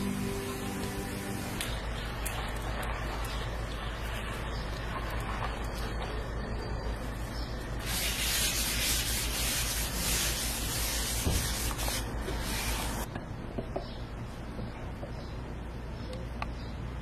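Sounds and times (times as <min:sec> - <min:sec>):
towel wiping hot griddle: 0:07.8 - 0:13.0.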